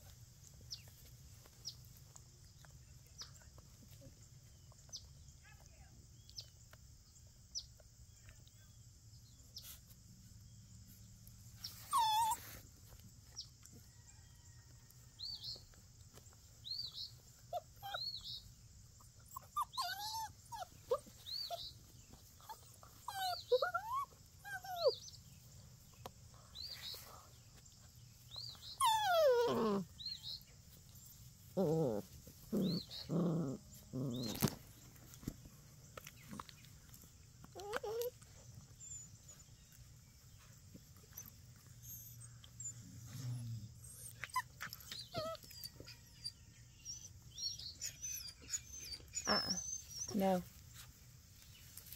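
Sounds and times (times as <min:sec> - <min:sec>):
puppies whining and yipping: 0:11.5 - 0:13.7, 0:16.6 - 0:25.5, 0:26.5 - 0:35.3, 0:35.9 - 0:50.9
puppy yelp: 0:11.7 - 0:12.6, 0:17.5 - 0:18.5, 0:19.2 - 0:21.8, 0:22.4 - 0:25.0, 0:28.5 - 0:29.9, 0:37.5 - 0:39.0, 0:41.1 - 0:42.8, 0:43.8 - 0:50.2
puppy growls: 0:28.8 - 0:30.2, 0:31.5 - 0:34.9, 0:41.8 - 0:49.8.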